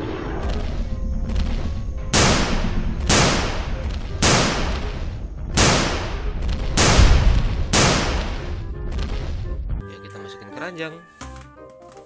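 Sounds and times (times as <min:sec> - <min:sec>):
gunshot cracks: 0:06.8 - 0:08.5.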